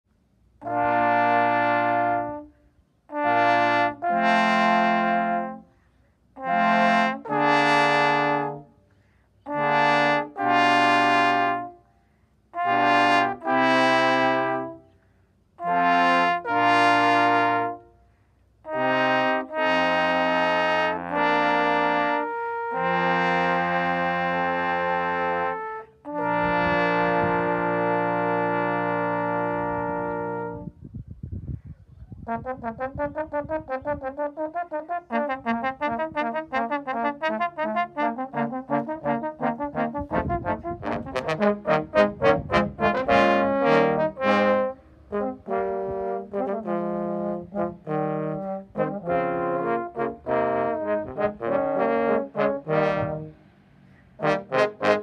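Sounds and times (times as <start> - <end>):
trombone quartet playing chords: 0.6 - 5.7, 6.3 - 8.8, 9.5 - 11.9, 12.6 - 14.9, 15.6 - 17.9, 18.6 - 30.8, 32.3 - 55.0.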